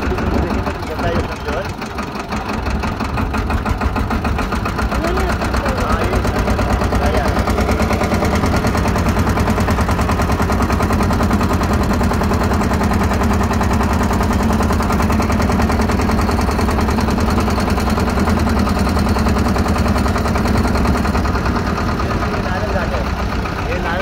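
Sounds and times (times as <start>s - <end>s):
motorboat engine chugging: 0.0s - 24.0s.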